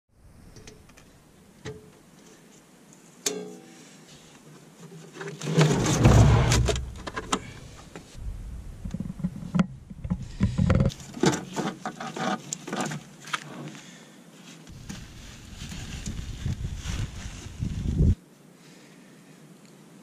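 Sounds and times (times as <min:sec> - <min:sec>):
low rumble: 0:05.9 - 0:10.9.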